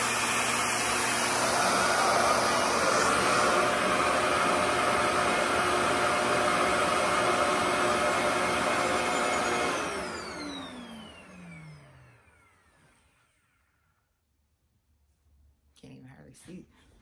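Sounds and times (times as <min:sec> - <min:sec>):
hair dryer running: 0:00.0 - 0:13.6
motor whine spinning down: 0:00.0 - 0:13.7.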